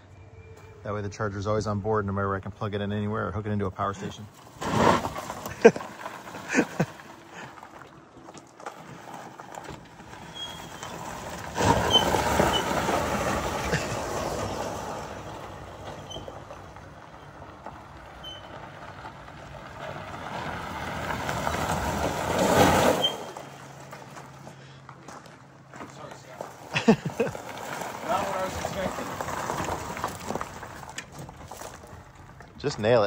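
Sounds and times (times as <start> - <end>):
tyres crunching on gravel: 0.6 - 33.0.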